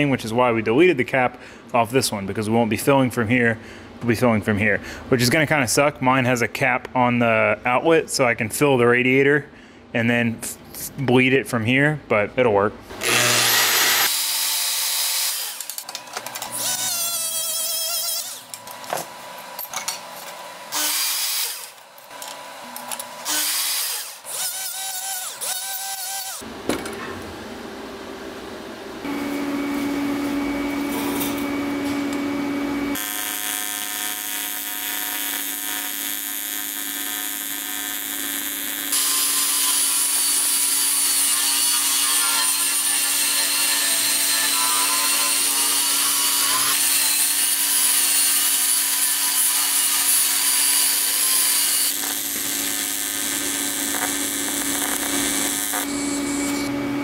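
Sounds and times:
welding arc buzzing: 12.9s - 15.9s, 16.5s - 18.8s, 20.7s - 26.5s, 29.0s - 56.8s.

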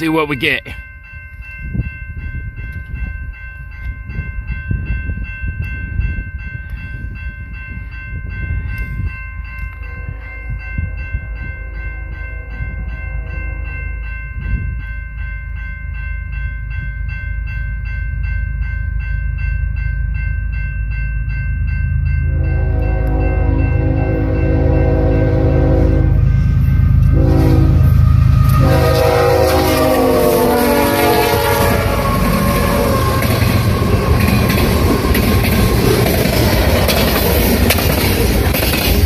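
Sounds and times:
freight train rumble: 0.0s - 39.0s
wind buffeting microphone: 1.1s - 15.4s, 22.7s - 39.0s
distant train horn: 22.3s - 34.5s.

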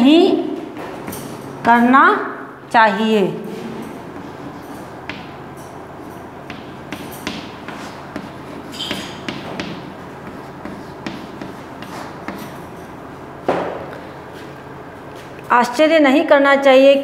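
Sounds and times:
chalk tapping and scraping on blackboard: 6.5s - 12.6s.

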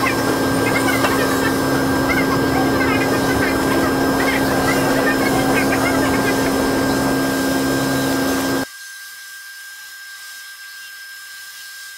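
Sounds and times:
loud mechanical whirring: 0.0s - 8.7s.

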